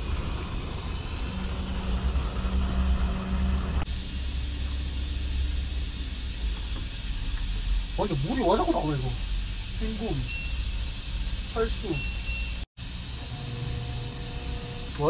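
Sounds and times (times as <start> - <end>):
low hum: 0.0 - 15.0
midrange hum: 0.0 - 15.0
water hissing into washing machine: 3.8 - 13.4.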